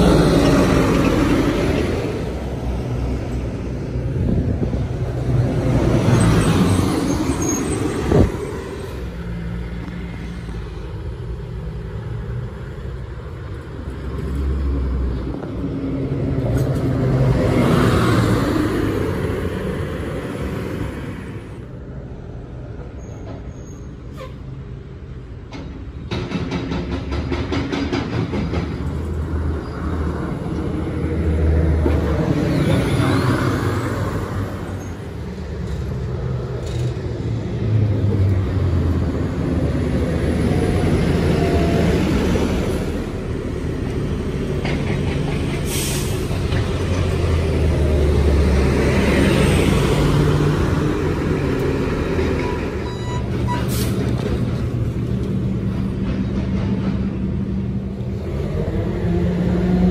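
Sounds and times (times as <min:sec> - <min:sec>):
bus engine rumbling: 0:00.0 - 0:59.9
air brakes hissing: 0:45.5 - 0:46.6, 0:53.5 - 0:54.2.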